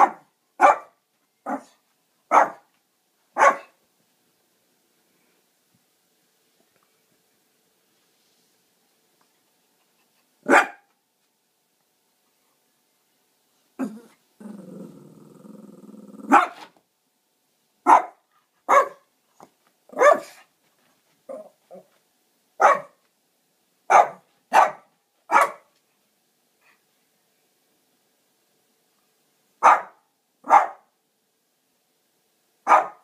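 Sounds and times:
dog barking: 0.0s - 2.7s, 3.4s - 3.8s, 10.4s - 10.9s, 16.3s - 16.7s, 17.8s - 19.1s, 19.9s - 20.4s, 22.6s - 23.0s, 23.9s - 25.7s, 29.6s - 30.9s, 32.6s - 33.0s
dog growling low: 13.8s - 16.3s.

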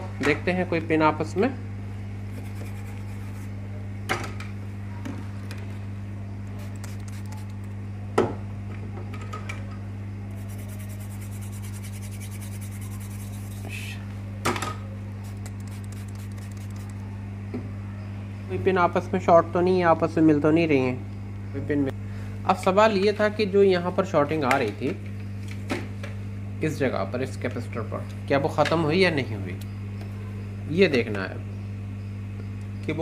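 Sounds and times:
low electrical hum: 0.0s - 33.0s
brush scrubbing circuit board: 2.3s - 3.5s, 10.4s - 13.9s, 15.2s - 17.0s.

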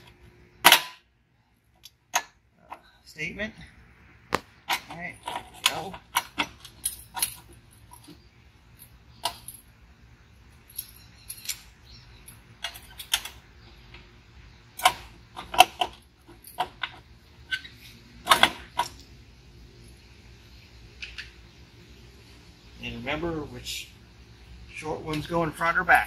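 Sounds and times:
metallic clicks of engine parts: 0.0s - 3.0s, 4.3s - 9.8s, 10.4s - 19.2s, 20.9s - 21.4s.

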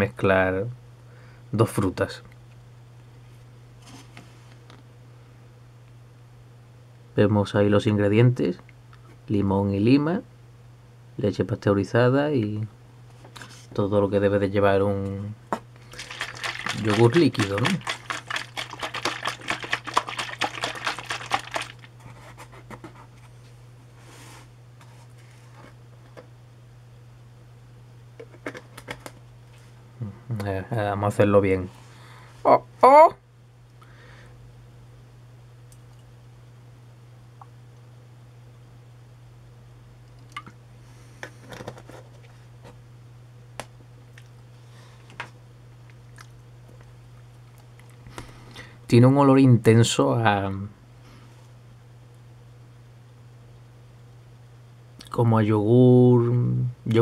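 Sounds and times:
steady low hum: 0.0s - 57.0s
plastic bottle crinkling: 15.8s - 21.9s.

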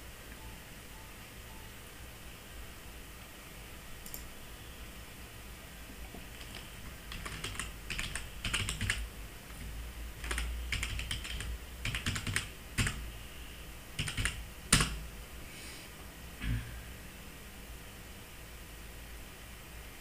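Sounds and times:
keyboard typing: 6.3s - 9.1s, 10.2s - 13.0s, 14.0s - 15.0s.

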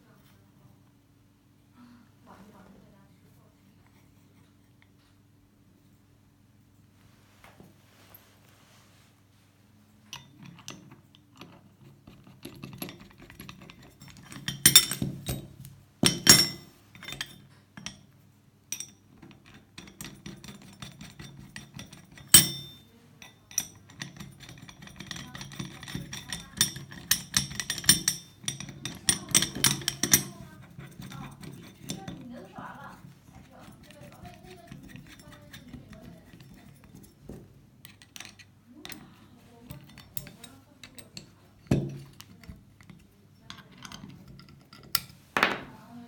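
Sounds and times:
metal bolts clicking and knocking: 10.1s - 18.0s, 18.7s - 32.2s, 33.6s - 39.0s, 39.7s - 45.7s.

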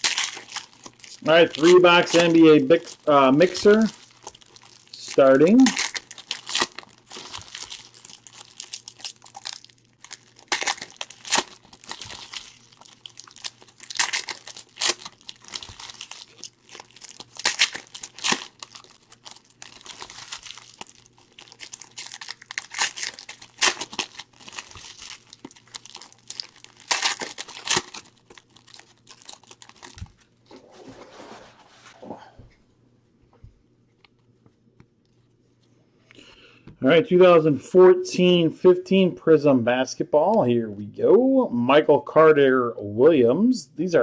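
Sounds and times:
foil wrappers tearing and crinkling: 0.0s - 30.2s.

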